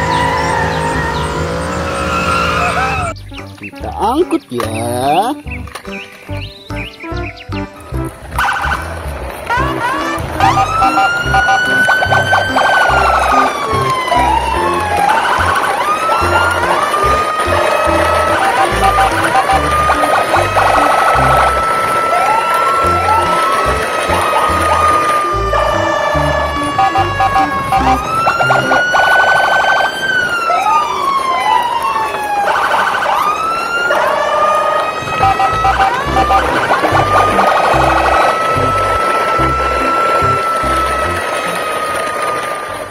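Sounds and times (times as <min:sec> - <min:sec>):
cheerful music with steady beat: 0:03.1 - 0:21.4
siren-like whistling tone: 0:09.8 - 0:42.8
rapid beeps: 0:26.8 - 0:29.8.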